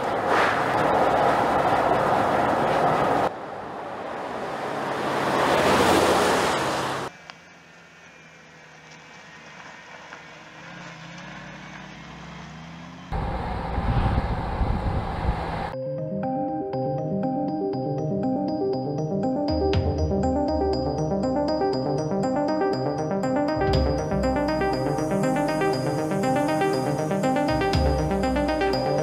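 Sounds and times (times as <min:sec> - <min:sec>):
road and wind noise: 0:00.0 - 0:15.8
low engine hum: 0:07.1 - 0:15.8
loud low engine note: 0:20.2 - 0:29.0.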